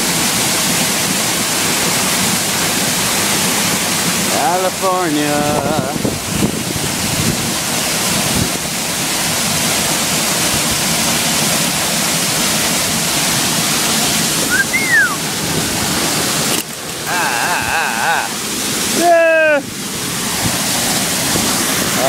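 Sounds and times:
water rushing over rock: 0.0s - 22.0s
short wavering pitched sound: 14.5s - 15.2s.

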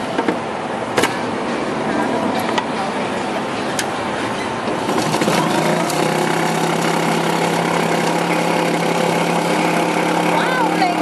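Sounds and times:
bowl chopper motor humming: 4.9s - 11.0s.

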